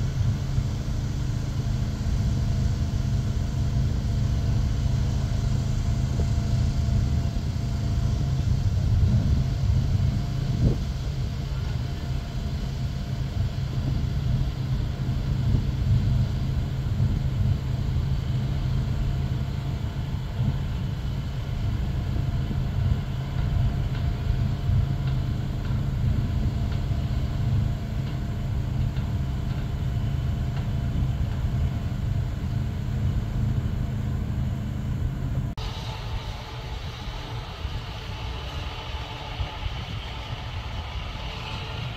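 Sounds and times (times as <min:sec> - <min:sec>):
engine idling: 0:00.0 - 0:41.9.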